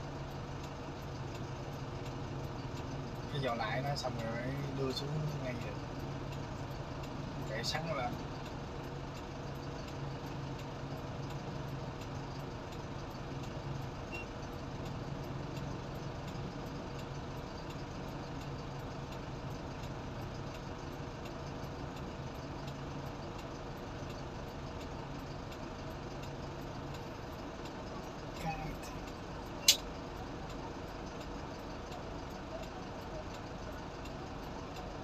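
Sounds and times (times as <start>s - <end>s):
ferry engine droning: 0.0s - 35.0s.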